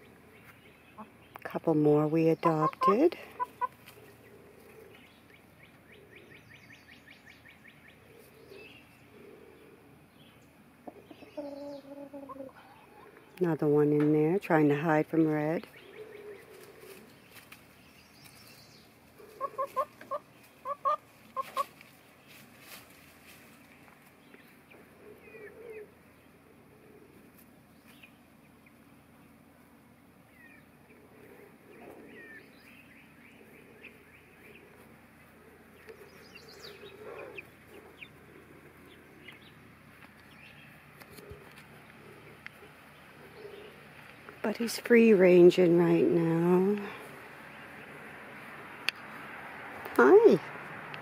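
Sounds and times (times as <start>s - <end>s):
chickens clucking: 0.0s - 6.5s, 7.4s - 17.7s, 19.0s - 44.6s.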